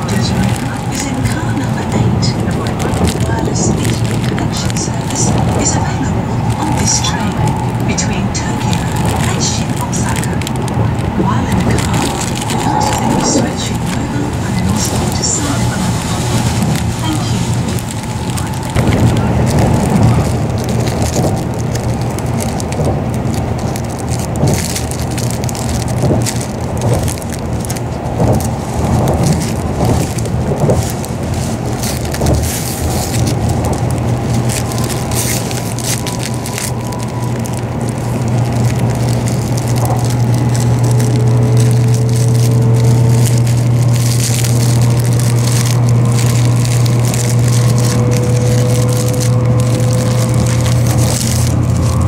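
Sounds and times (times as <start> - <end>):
plastic wrapper crinkling: 0.0 - 52.0
train hum: 0.0 - 52.0
faint rising whine: 5.0 - 22.7.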